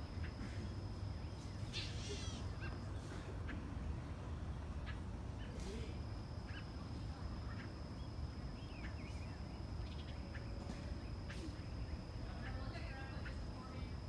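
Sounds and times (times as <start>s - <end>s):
warbling bird calls: 0.1s - 3.6s
bird chirps: 6.3s - 14.0s.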